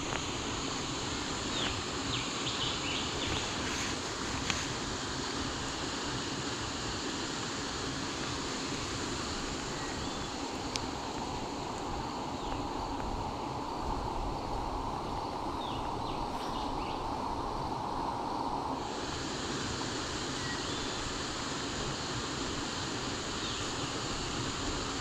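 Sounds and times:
insect hiss: 0:00.0 - 0:25.0
wind rumble on microphone: 0:09.1 - 0:19.1.

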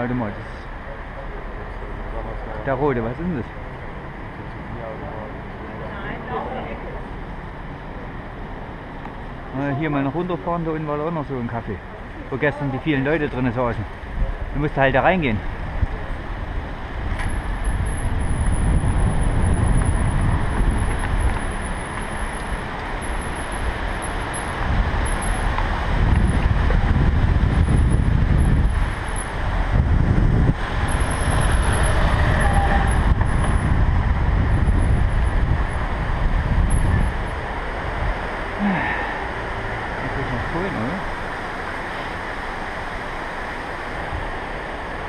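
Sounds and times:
wind buffeting microphone: 0:15.3 - 0:38.6.

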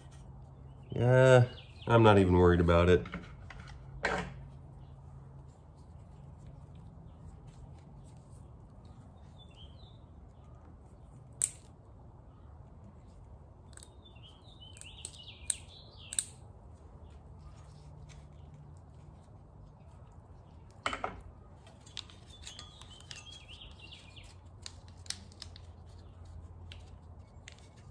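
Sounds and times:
sharp plastic clicks: 0:11.3 - 0:11.8, 0:14.7 - 0:16.4.

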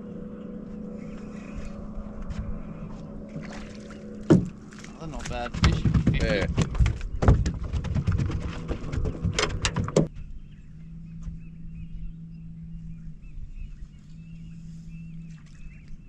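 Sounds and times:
steady low hum: 0:00.0 - 0:16.0
knocks and clatter on boat: 0:03.4 - 0:10.2.

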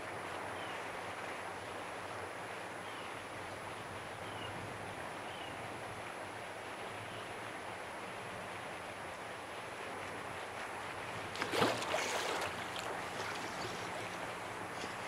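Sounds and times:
seawater lapping: 0:05.3 - 0:15.0.

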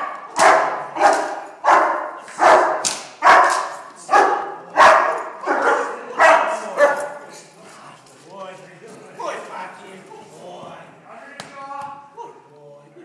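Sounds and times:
dog barking loudly: 0:00.0 - 0:07.2.

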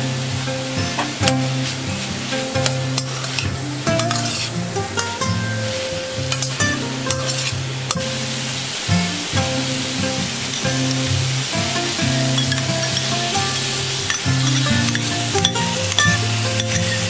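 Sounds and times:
food sizzling in a wok: 0:00.0 - 0:17.0
metal spatula scraping a pan: 0:02.4 - 0:08.5, 0:12.1 - 0:17.0.

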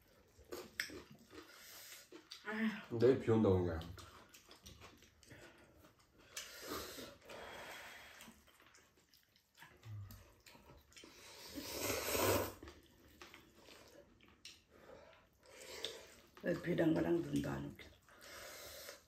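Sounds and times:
noodles being slurped: 0:03.8 - 0:19.0.

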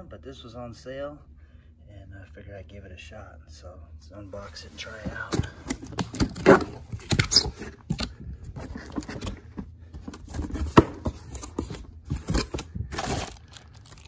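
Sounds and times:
cardboard box flaps rustling: 0:04.9 - 0:13.4.

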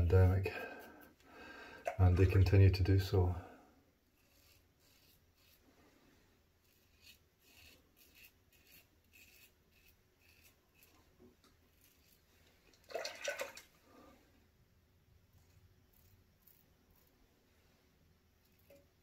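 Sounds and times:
razor scraping stubble: 0:04.2 - 0:05.7, 0:06.6 - 0:12.6, 0:15.4 - 0:17.2.

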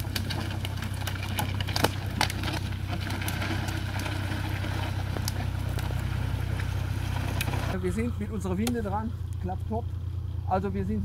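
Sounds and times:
wood and branches snapping: 0:00.0 - 0:07.8, 0:08.6 - 0:09.4
tractor diesel engine running: 0:00.0 - 0:11.0.

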